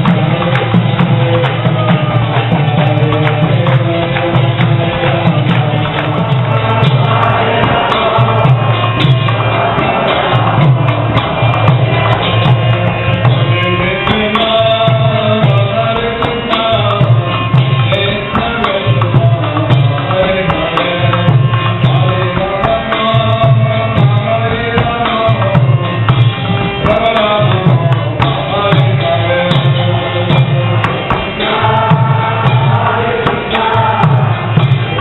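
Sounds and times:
voices chanting a melody: 0.0 - 17.6, 26.8 - 35.0
hand drum beat: 0.0 - 35.0.

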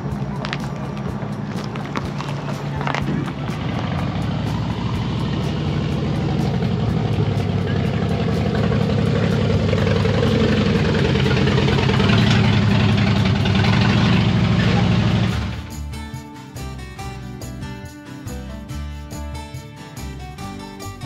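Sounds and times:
tyres rolling on gravel: 0.0 - 15.7
motorcycle engine running: 0.0 - 15.9.

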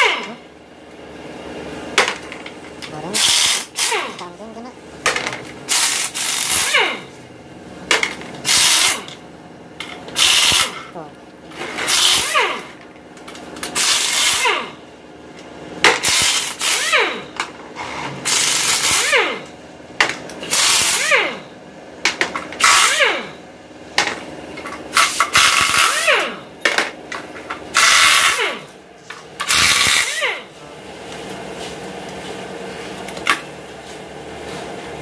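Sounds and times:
power tool bursts winding down: 13.8 - 14.8, 27.8 - 28.6, 29.4 - 30.5.

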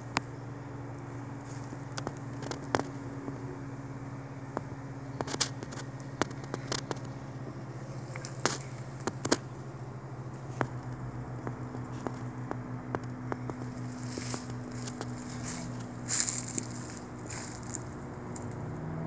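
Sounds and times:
low mechanical hum: 0.0 - 19.0
sharp crackles and clicks: 4.6 - 7.2.

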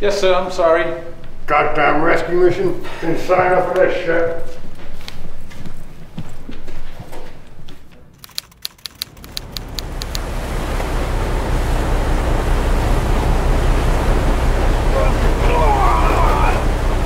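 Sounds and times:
sharp clicks: 8.2 - 10.2
boat engine rumble: 8.8 - 17.0
sea noise: 8.8 - 17.0.

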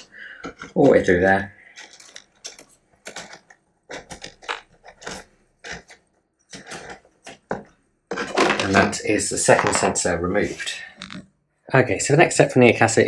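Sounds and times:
cable rustling through plastic: 0.0 - 9.0.

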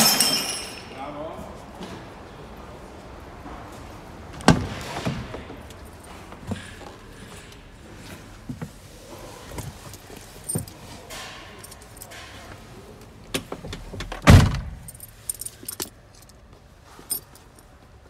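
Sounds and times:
keys jangling: 9.5 - 12.5, 14.7 - 17.8.

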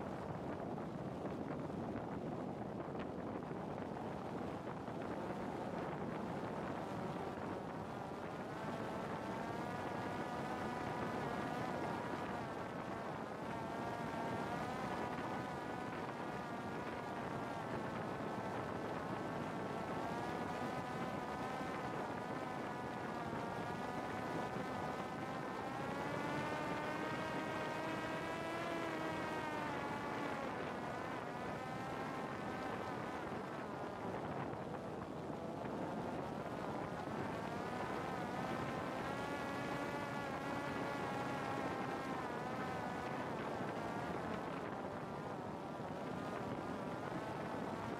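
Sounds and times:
drone motor buzzing whine: 19.4 - 33.5.

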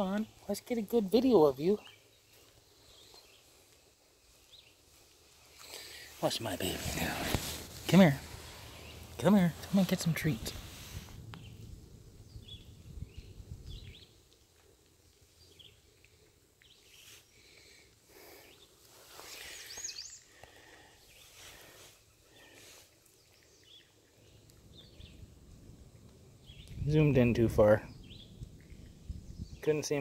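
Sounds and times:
faint bird chirps: 18.4 - 25.3.

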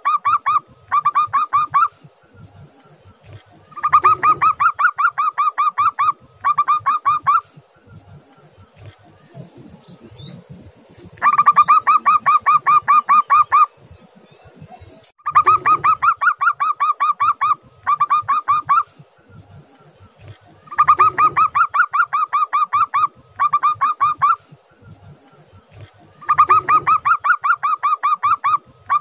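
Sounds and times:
dove cooing in staccato runs: 3.2 - 13.7, 20.2 - 29.0.

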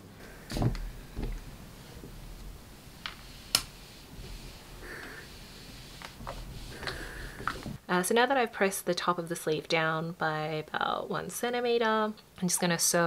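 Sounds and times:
steam iron hiss: 1.4 - 7.8.

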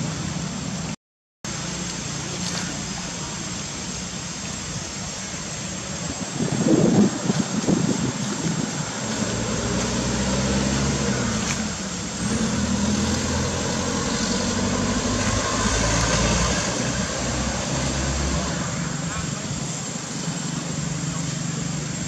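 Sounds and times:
steady high whine: 0.0 - 22.0
engine idling: 18.5 - 22.0.

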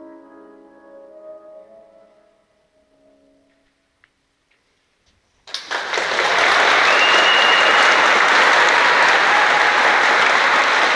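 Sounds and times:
audience applauding: 5.5 - 10.9
high whistle-like tone: 6.9 - 8.0.

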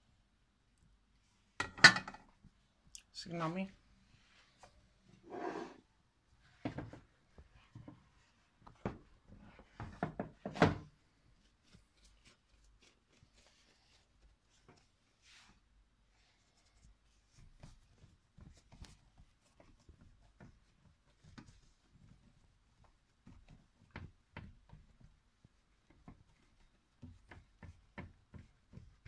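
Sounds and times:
patting and rubbing dough: 2.3 - 29.0
dough knocks and thuds: 8.6 - 10.9, 17.5 - 29.0.

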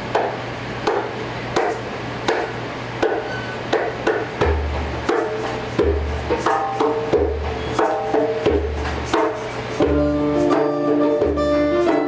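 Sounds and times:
percussion beat: 0.0 - 12.0
pitched instrument tones: 9.8 - 12.0.

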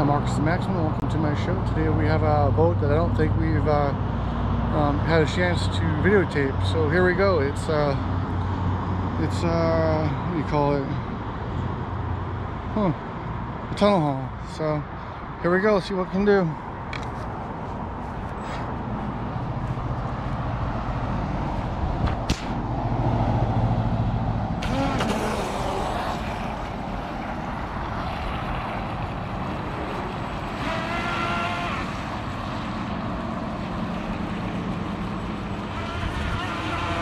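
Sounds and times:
sharp knock: 22.0 - 22.6
electric motor whine: 24.6 - 26.8, 30.6 - 32.2, 35.8 - 37.0.

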